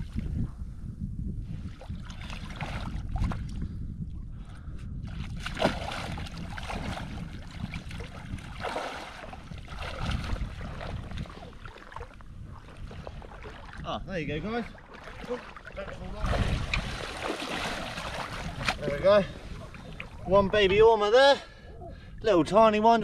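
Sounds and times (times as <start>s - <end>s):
wind rumbling on microphone: 0.0s - 23.0s
water sloshing and splashing: 1.5s - 3.6s, 5.0s - 20.8s.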